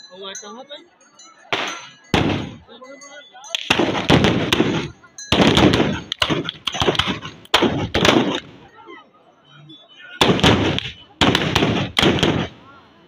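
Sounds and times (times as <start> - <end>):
volley of gunshots: 1.5 - 2.7, 3.6 - 8.7, 10.2 - 12.7.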